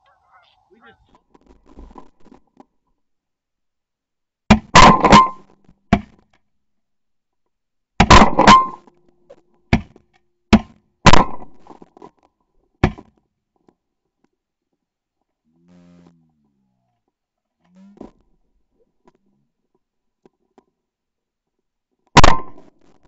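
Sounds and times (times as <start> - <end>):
shotgun blasts: 22.2 - 22.6.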